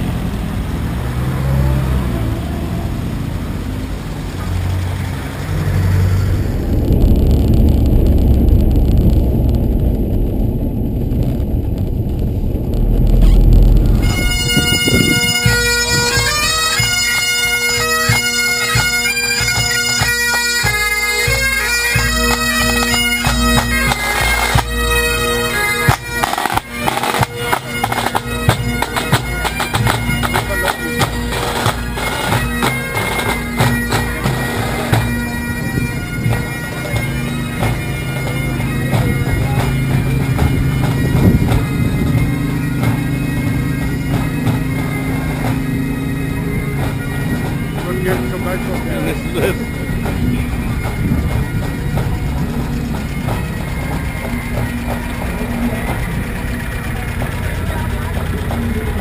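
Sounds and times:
bagpipes with drones: 0:00.0 - 0:08.9, 0:12.4 - 0:59.0
car engine running: 0:00.0 - 0:20.1, 0:20.7 - 0:59.0
snare and bass drums: 0:25.8 - 0:45.9.

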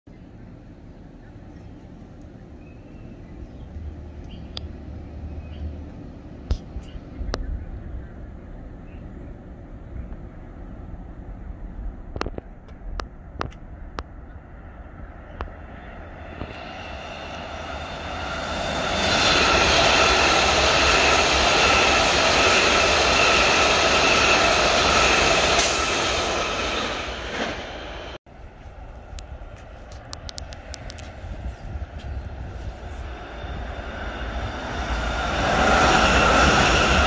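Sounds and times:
train wheels rumbling on rail: 0:01.2 - 0:37.0
high whining tones: 0:14.4 - 0:28.2, 0:31.6 - 0:37.0.

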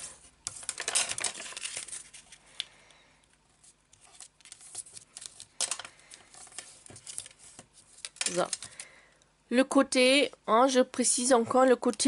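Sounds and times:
paper rustling and creasing: 0:00.0 - 0:02.6, 0:03.4 - 0:08.8.

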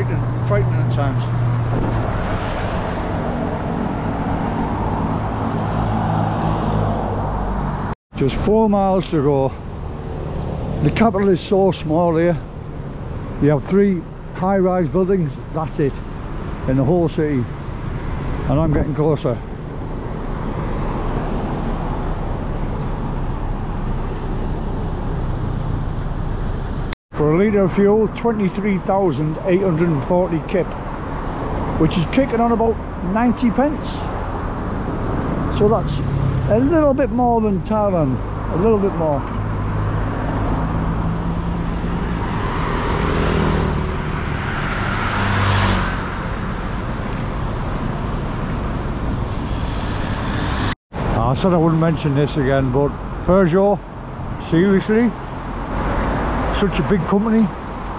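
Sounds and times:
road traffic passing: 0:00.0 - 0:57.9.

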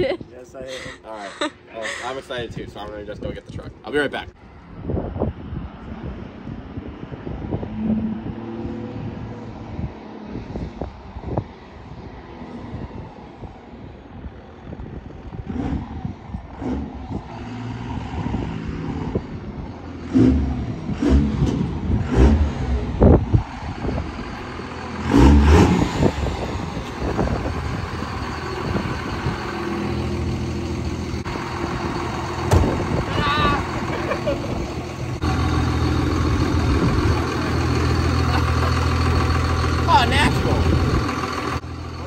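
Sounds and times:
diesel truck engine revving and idling: 0:12.0 - 0:42.0.

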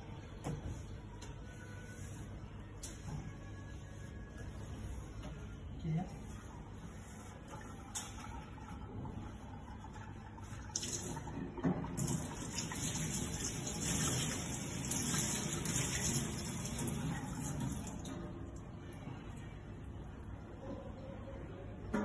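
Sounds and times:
hands rinsed under water: 0:12.0 - 0:18.1.

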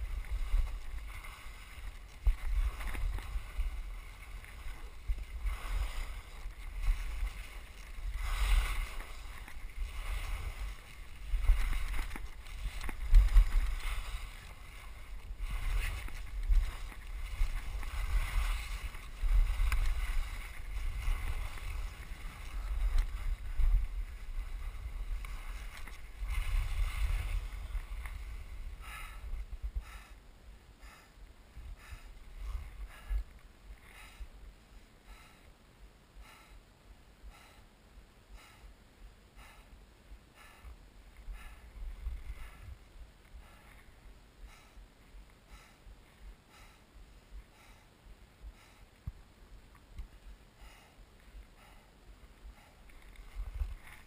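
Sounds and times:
wind on microphone: 0:00.0 - 0:30.2, 0:30.8 - 0:34.4, 0:40.6 - 0:44.6, 0:51.4 - 0:54.0.

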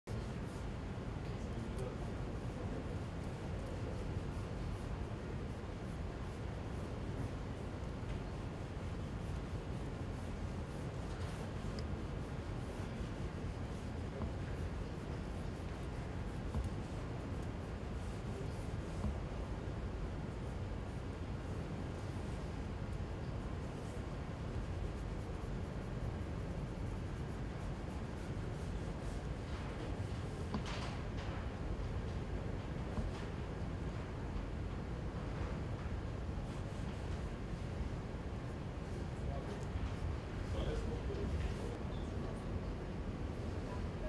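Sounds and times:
low background hum: 0:00.0 - 0:44.0
pen scratching across paper: 0:08.6 - 0:19.7.

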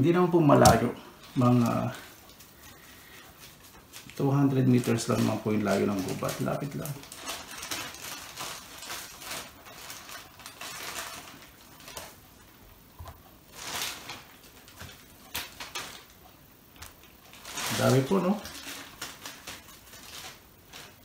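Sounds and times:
rustling of baking paper: 0:00.0 - 0:21.0.

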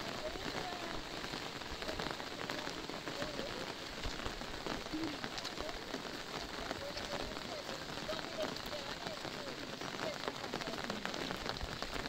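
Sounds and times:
rain on fabric umbrellas: 0:00.0 - 0:12.0.

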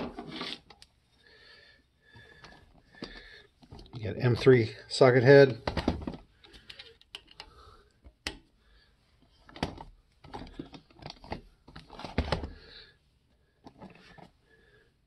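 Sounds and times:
plastic and metal parts clicking: 0:05.6 - 0:08.5, 0:09.4 - 0:12.6.

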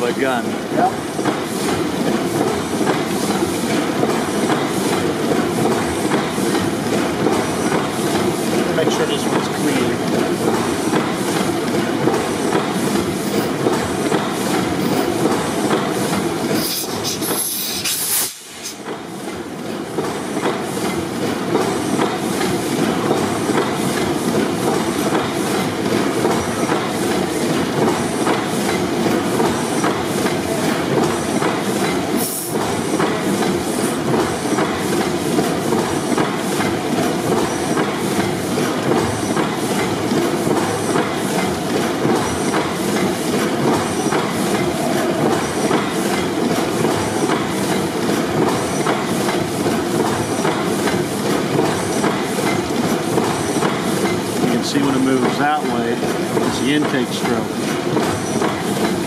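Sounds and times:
compressor engine clatter: 0:00.0 - 0:59.0
sharp gas hiss: 0:16.5 - 0:18.8.

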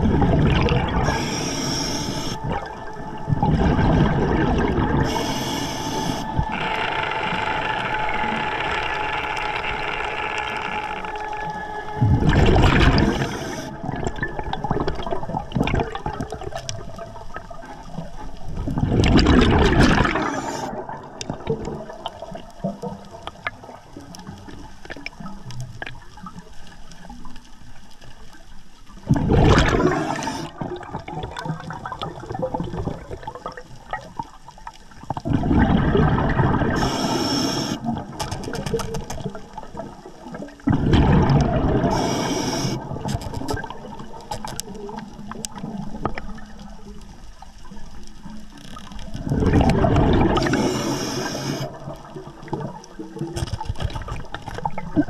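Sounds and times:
gurgling exhaust bubbles: 0:00.0 - 0:01.3, 0:03.3 - 0:05.2, 0:12.0 - 0:16.9, 0:18.6 - 0:22.8, 0:29.0 - 0:33.6, 0:35.2 - 0:36.9, 0:39.7 - 0:42.0, 0:49.2 - 0:50.9
faint crackle: 0:00.0 - 0:55.0.

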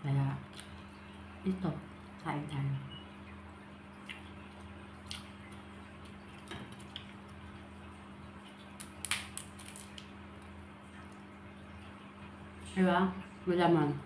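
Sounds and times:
steady low hum: 0:00.0 - 0:14.0
crab shell cracking: 0:08.5 - 0:11.2.

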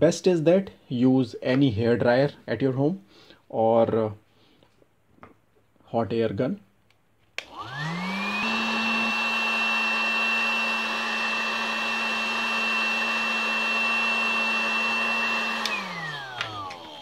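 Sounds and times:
hot air gun whirring: 0:07.4 - 0:17.0.

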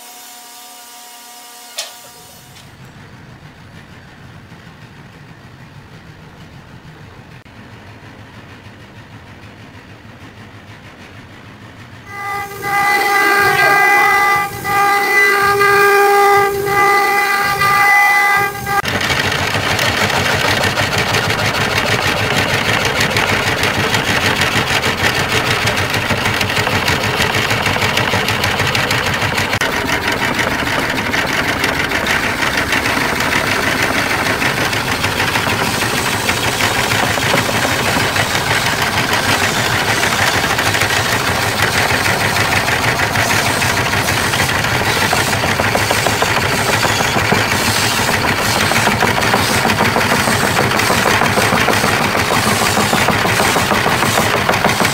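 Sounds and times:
rapid pulsing rattle: 0:02.8 - 0:54.9
woodworking machine running: 0:12.1 - 0:54.9.

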